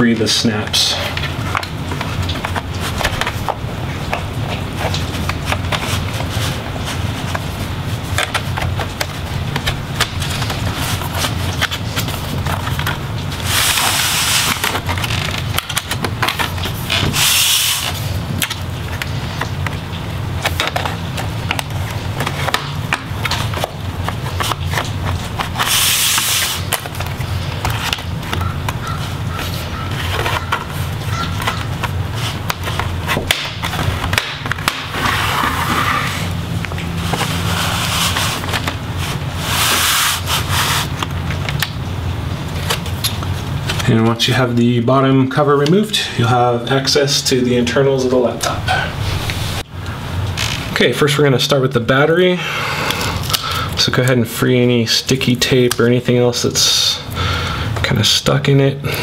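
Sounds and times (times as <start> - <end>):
plastic scraping: 0.9 - 41.8.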